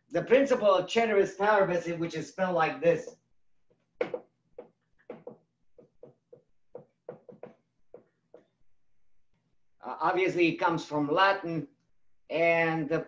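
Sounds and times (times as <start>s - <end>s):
marker scratching on whiteboard: 3.7s - 8.6s.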